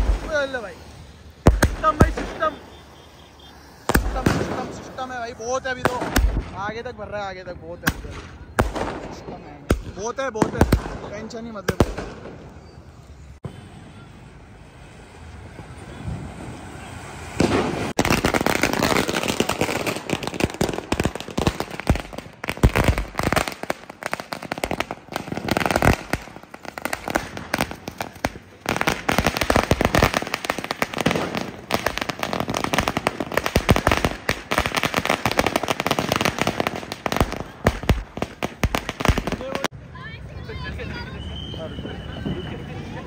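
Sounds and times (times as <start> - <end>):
firecrackers cracking and banging: 0.0 - 6.6, 7.8 - 12.6, 17.3 - 39.7.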